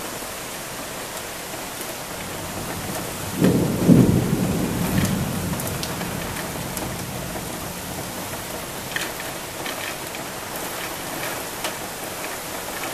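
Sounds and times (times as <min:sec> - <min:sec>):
heavy rain hissing: 0:00.0 - 0:12.9
raindrops ticking: 0:01.1 - 0:12.9
thunder rumble: 0:02.2 - 0:10.4.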